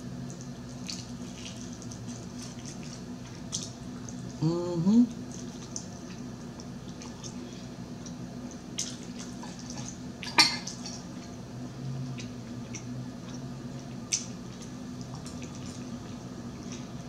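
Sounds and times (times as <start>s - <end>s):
person humming mmm: 4.4s - 5.2s
soft chewing and mouth clicks: 5.1s - 11.4s, 12.0s - 17.0s.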